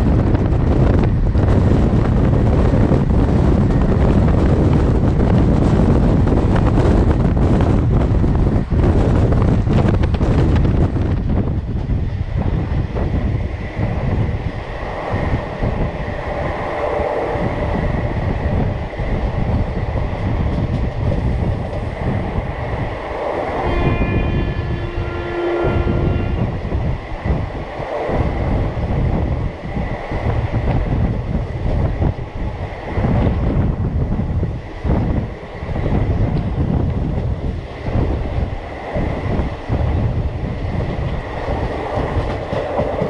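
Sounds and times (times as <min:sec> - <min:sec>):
rushing wind: 0:00.0 - 0:43.0
train wheels rumbling on rails: 0:00.0 - 0:43.0
train horn: 0:23.5 - 0:26.7.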